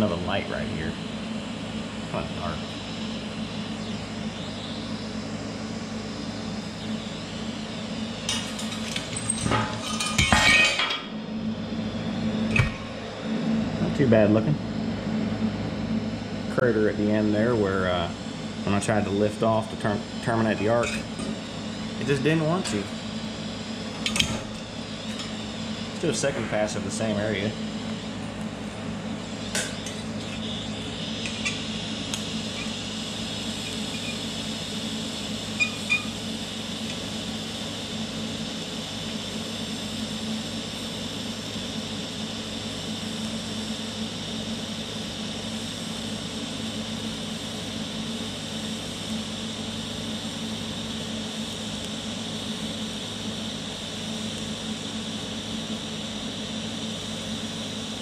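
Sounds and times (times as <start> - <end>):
welding arc crackling: 0.0 - 14.1, 17.0 - 58.0.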